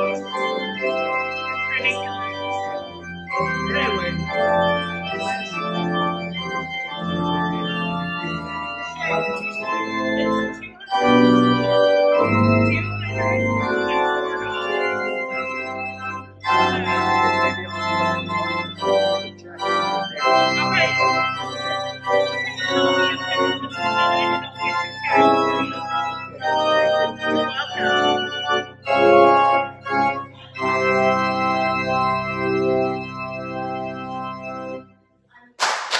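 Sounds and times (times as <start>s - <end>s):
church organ chords: 0.0s - 35.9s.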